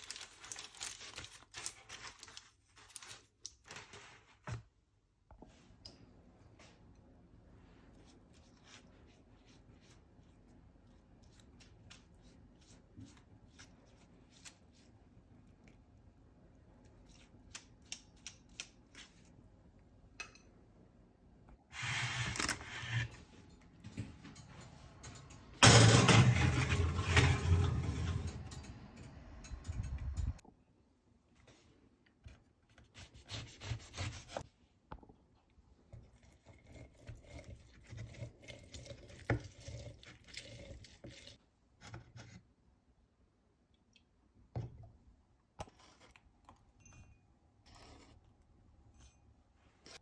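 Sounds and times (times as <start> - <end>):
metal baking tray scraping: 21.7 - 23.2, 25.6 - 28.6.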